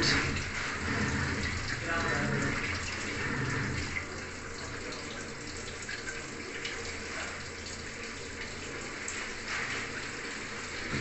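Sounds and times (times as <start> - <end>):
washing machine low hum: 0.0 - 11.0.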